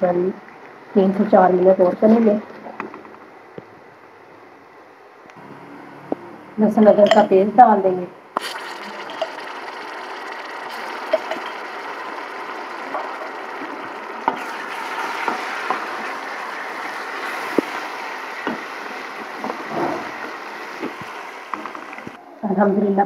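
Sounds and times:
onions sizzling in hot oil: 8.4 - 22.2.

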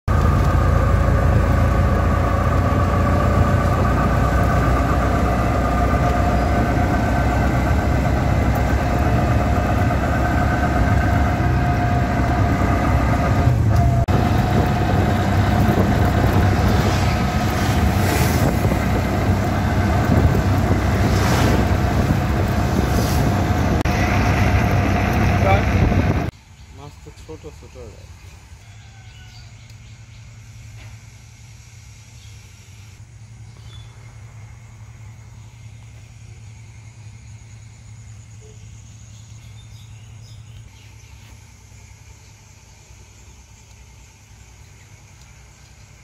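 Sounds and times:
auto-rickshaw engine running: 0.1 - 32.2
road and wind noise: 0.1 - 46.0.

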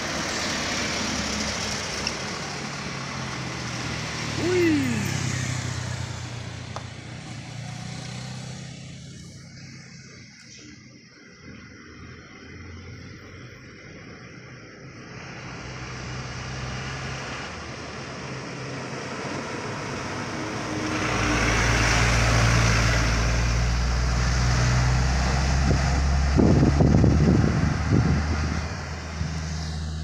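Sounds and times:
diesel truck engine rumble: 0.0 - 30.0.

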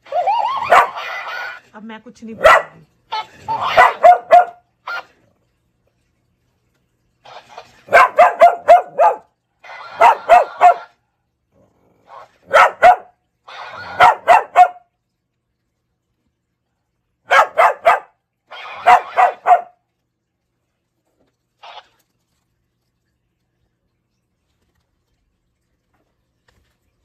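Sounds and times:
small dog barking sharply: 3.8 - 4.6, 7.9 - 9.3, 18.8 - 19.7.

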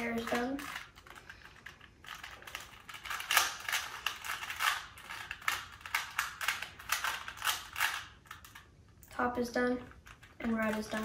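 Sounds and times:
puzzle cube clicking as twisted: 0.2 - 8.6.

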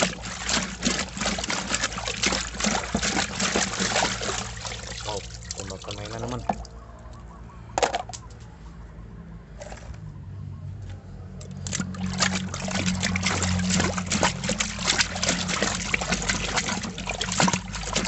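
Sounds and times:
hand splashing in muddy water: 11.6 - 18.0.

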